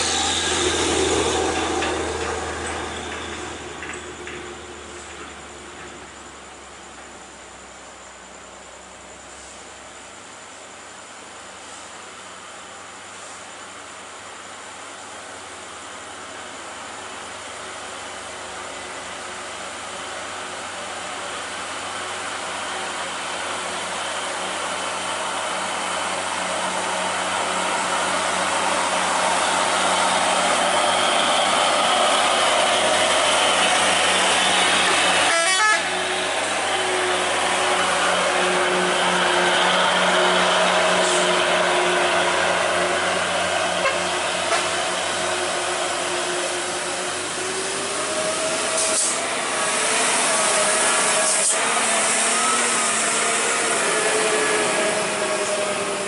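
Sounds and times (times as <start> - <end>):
diesel trucks climbing: 0.0 - 6.8.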